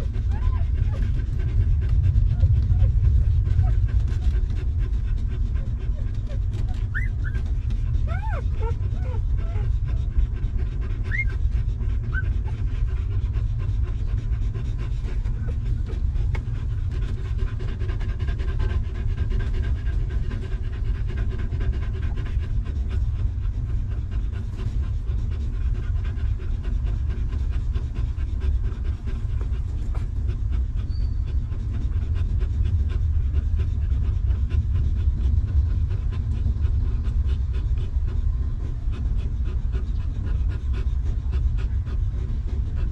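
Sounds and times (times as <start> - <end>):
dog panting: 0.0 - 42.9
puppy squeaking: 6.9 - 7.4, 8.1 - 9.6, 11.1 - 11.3.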